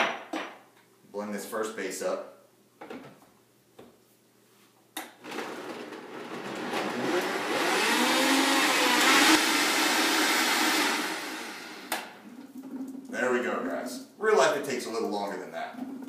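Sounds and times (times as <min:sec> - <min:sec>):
blender motor pureeing vegetables: 0:05.2 - 0:12.0.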